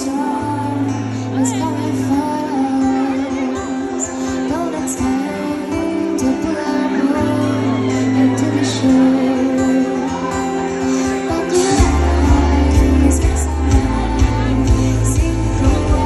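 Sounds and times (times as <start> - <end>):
live band playing slow song: 0.0 - 16.0
woman singing: 0.0 - 16.0
electric bass: 11.7 - 16.0.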